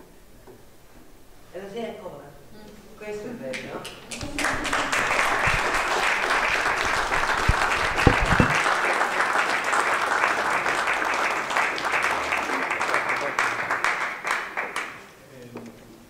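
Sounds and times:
audience applauding: 3.8 - 15.1
low knocks: 7.1 - 8.6.

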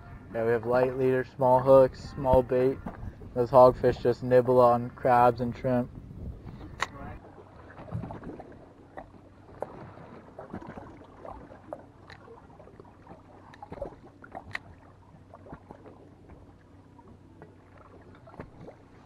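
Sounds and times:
waves lapping against boat hull: 0.0 - 19.0
light splashes: 6.5 - 19.0.

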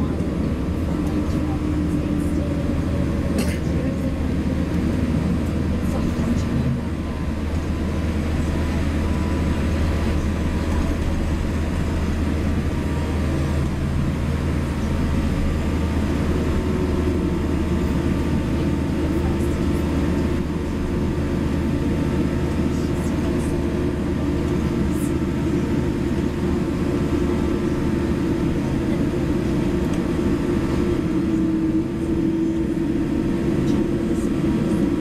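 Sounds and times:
jet engine cabin hum: 0.0 - 35.0.

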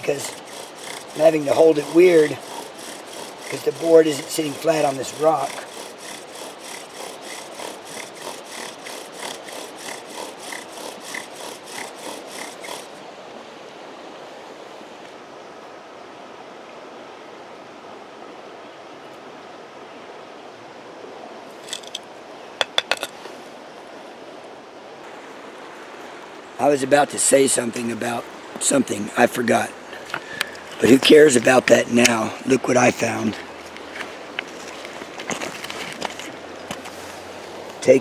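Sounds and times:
bow drill spindle rubbing: 0.0 - 13.0
creek rushing: 0.0 - 38.0.

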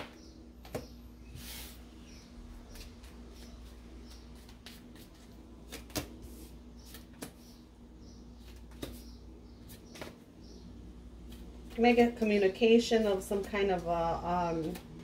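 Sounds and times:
cards tapping and sliding: 2.7 - 7.5, 8.4 - 9.1, 9.7 - 10.2.

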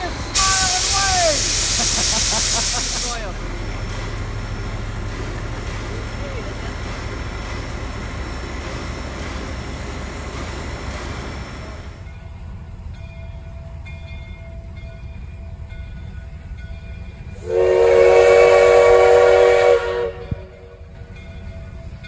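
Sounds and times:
steam locomotive whistle: 0.0 - 3.2, 17.3 - 20.7
diesel locomotive rumble: 0.0 - 22.0.

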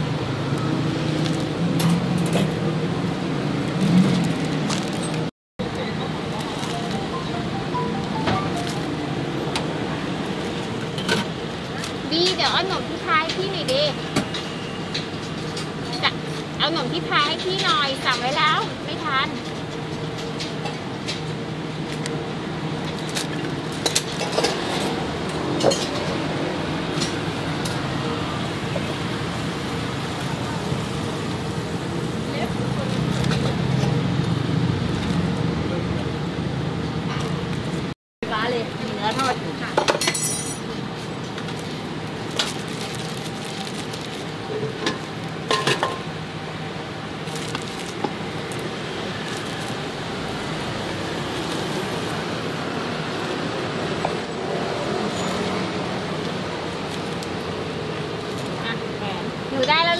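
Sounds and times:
plastic bags crinkling: 41.5 - 45.1, 47.2 - 49.9.

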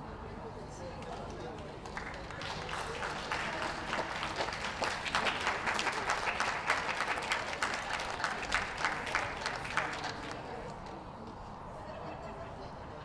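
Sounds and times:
audience applauding: 1.8 - 10.8.

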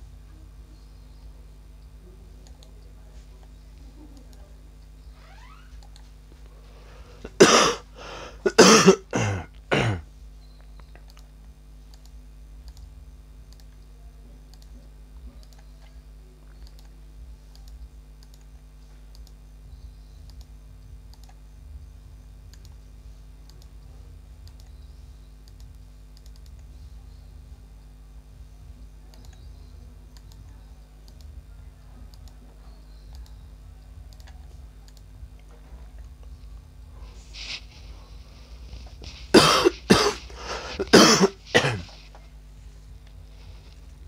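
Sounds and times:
low electrical hum: 0.0 - 44.0
light clicks: 10.6 - 12.9, 14.5 - 14.7, 15.4 - 18.5, 19.1 - 19.4, 25.4 - 26.7.

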